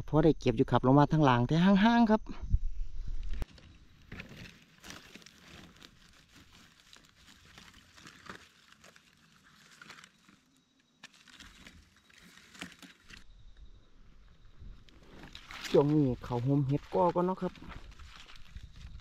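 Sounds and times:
dry leaves crackling and rustling: 3.4s - 13.3s, 14.6s - 19.0s.

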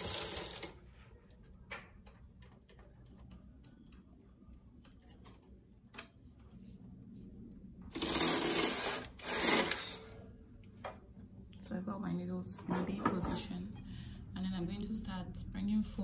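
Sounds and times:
knitting machine carriage pushed: 0.0s - 0.9s, 7.9s - 10.1s.

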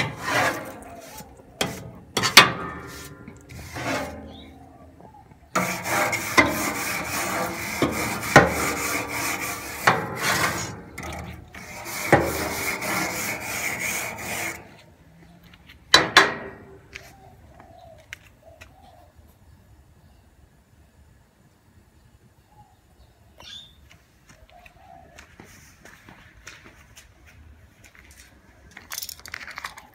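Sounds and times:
brush knocking on grill bars: 0.0s - 4.6s, 5.5s - 14.7s, 15.9s - 16.8s
grill brush scraping metal grates: 0.0s - 14.9s, 15.9s - 16.8s.

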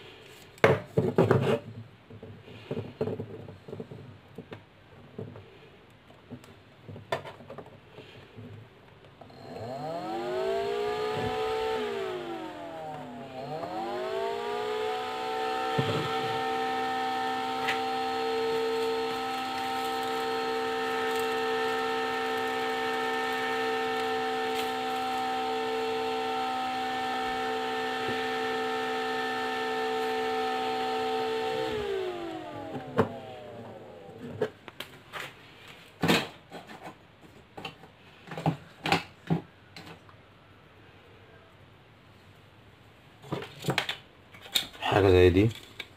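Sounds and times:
cooling fan whining: 9.2s - 34.6s.

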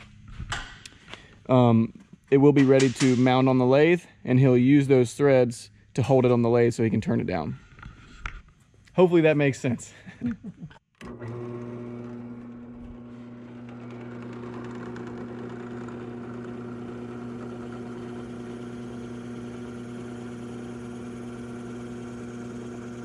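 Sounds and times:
drill press boring into resin: 11.0s - 23.0s.

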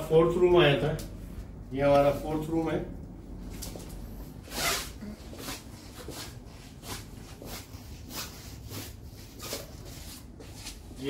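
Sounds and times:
footsteps scuffing on hard floor: 5.2s - 11.0s.

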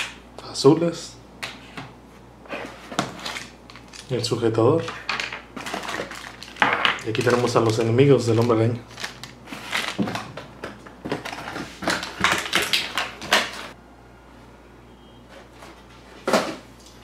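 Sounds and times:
plastic bag and cardboard rustling: 5.2s - 10.4s.

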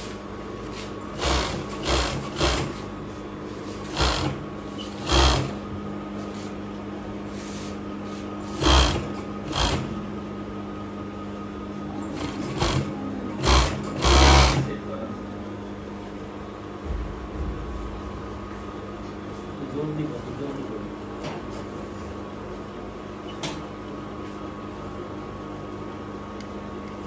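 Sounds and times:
steady hum: 0.0s - 27.0s
overlock sewing machine stitching: 1.2s - 2.8s, 3.8s - 5.6s, 8.6s - 10.0s, 12.1s - 14.7s.

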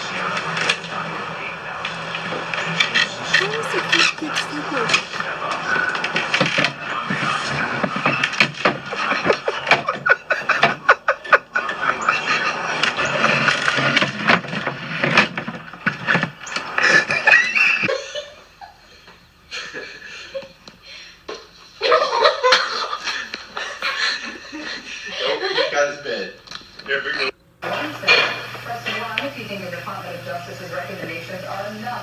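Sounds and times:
people laughing: 0.0s - 14.0s, 16.6s - 21.1s, 21.8s - 26.3s.

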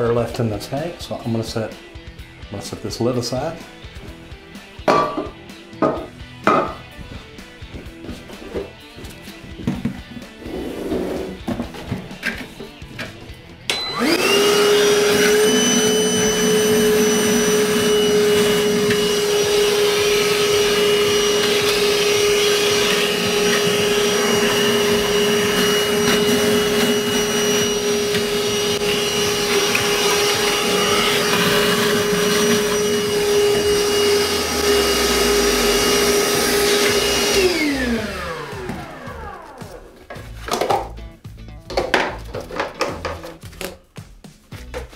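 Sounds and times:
wet vac running: 13.7s - 40.0s
hose sucking water: 14.0s - 39.7s.

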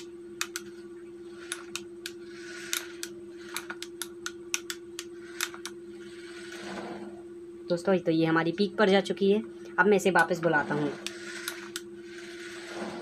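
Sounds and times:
rocker switches clicking: 0.0s - 0.7s, 1.5s - 5.8s
small electric motor whirring: 0.0s - 7.1s, 10.2s - 13.0s
steady low hum: 0.0s - 13.0s.

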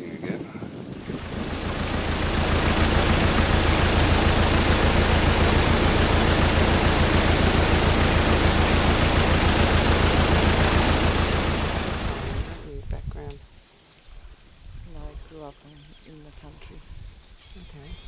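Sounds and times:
loud rushing hiss: 1.0s - 12.7s
deep rumble: 1.0s - 13.3s.

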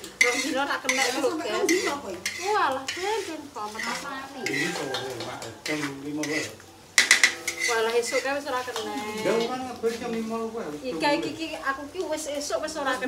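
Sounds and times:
utensil clattering on pan: 0.0s - 8.9s
utensil scraping a pan: 0.0s - 10.1s
light frying sizzle: 0.0s - 13.0s.

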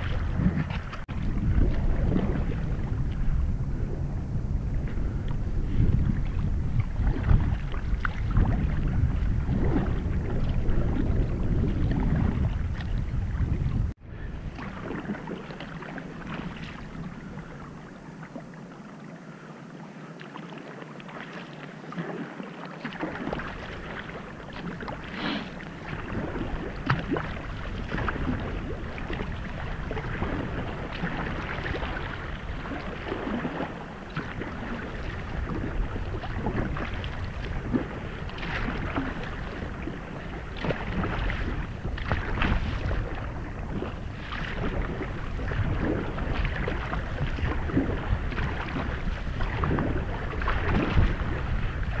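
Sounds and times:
kayak paddle splashing in water: 0.0s - 3.9s, 4.7s - 52.0s
wind rumbling on microphone: 0.0s - 20.2s, 21.0s - 52.0s.

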